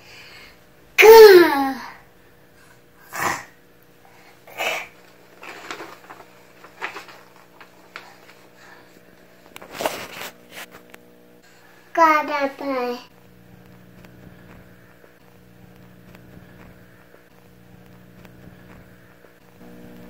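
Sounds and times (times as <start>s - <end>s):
paper crackling and rustling: 4.1s - 10.9s.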